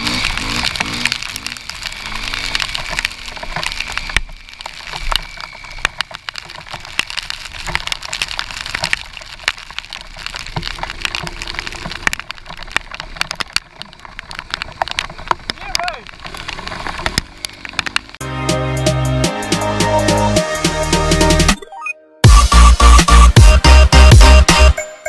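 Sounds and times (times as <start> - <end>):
raindrops tapping on camera housing: 0.0 - 18.2.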